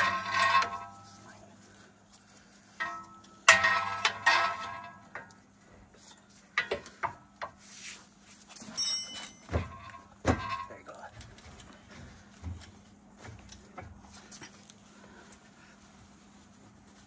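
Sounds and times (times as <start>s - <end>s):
pry bar clanking on metal: 2.8s - 5.3s.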